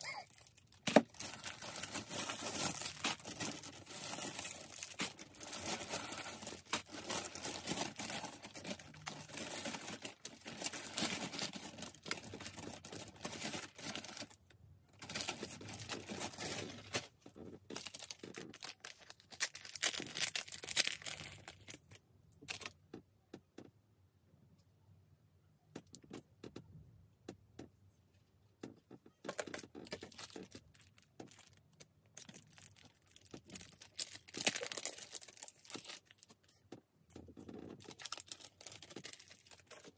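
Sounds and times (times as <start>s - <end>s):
plastic bags crinkling: 0.0s - 22.7s, 29.2s - 36.6s, 37.4s - 39.9s.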